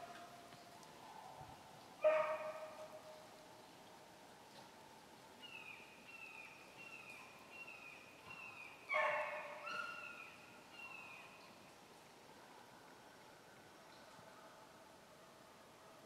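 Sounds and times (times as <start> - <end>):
distant dogs barking: 2.0 - 3.0, 8.9 - 10.0.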